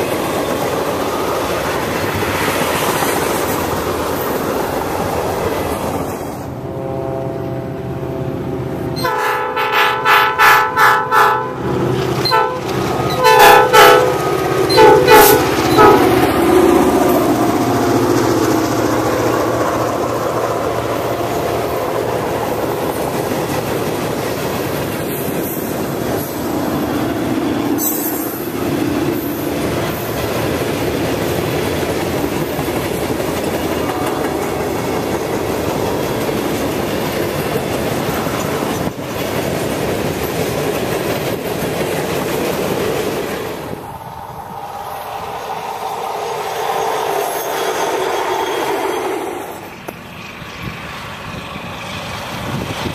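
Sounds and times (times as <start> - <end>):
train wheels rumbling on rail: 0.0 - 52.9
locomotive horn blasts: 6.6 - 16.2.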